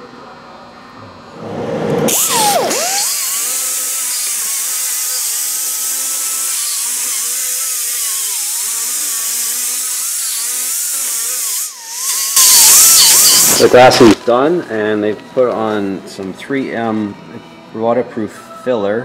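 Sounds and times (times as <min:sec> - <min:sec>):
die grinder whining: 0:01.4 - 0:15.9
grinding hiss: 0:01.4 - 0:15.9.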